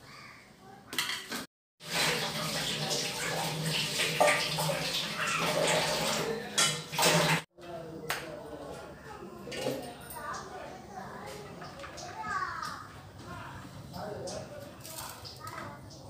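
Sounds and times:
water running from tap into sink: 1.8 - 7.4.

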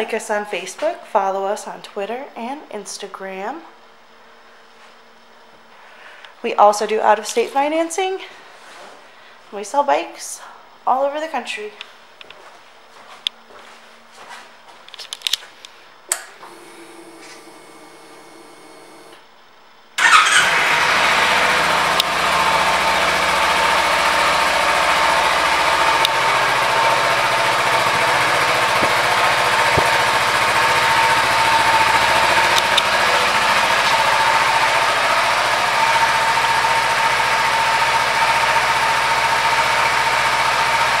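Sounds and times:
motorcycle engine starting and idling: 16.1 - 19.2, 20.0 - 41.0.

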